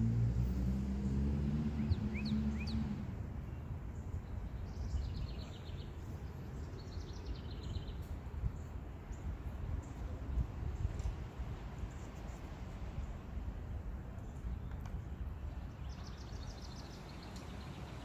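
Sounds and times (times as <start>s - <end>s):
low engine hum: 0.0s - 4.2s.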